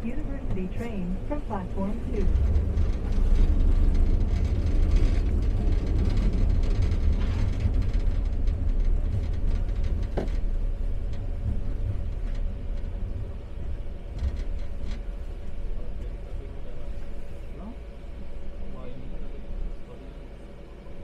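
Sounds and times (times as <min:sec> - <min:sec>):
faint steady hum: 0:00.0 - 0:21.0
train running rumble: 0:00.0 - 0:21.0.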